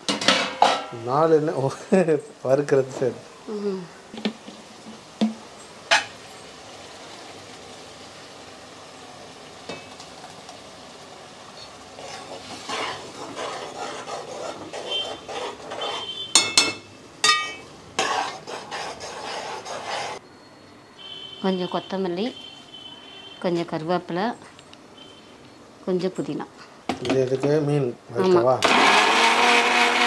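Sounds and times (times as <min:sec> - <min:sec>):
spoon scraping a steel jar: 0:12.0 - 0:16.5, 0:17.4 - 0:20.2.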